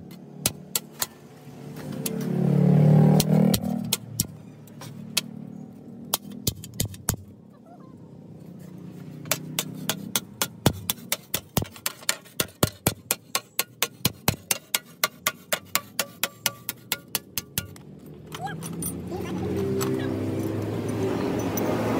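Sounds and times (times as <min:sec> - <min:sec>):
hammer beating steel on anvil: 0:09.3 - 0:17.8.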